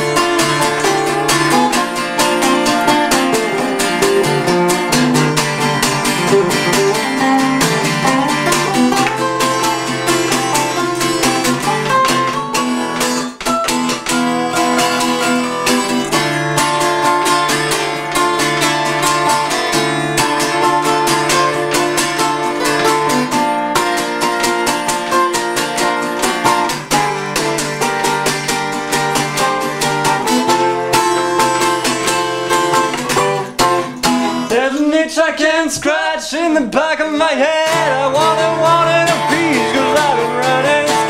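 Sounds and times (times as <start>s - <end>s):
resonator guitar picking: 0.0s - 34.9s, 37.5s - 41.0s
acoustic guitar strumming: 0.0s - 41.0s.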